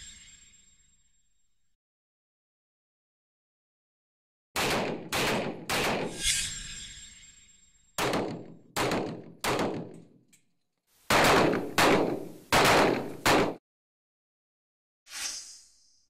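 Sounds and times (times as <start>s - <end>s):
handgun shots: 4.6s - 6.2s, 8.0s - 10.2s, 11.1s - 13.6s.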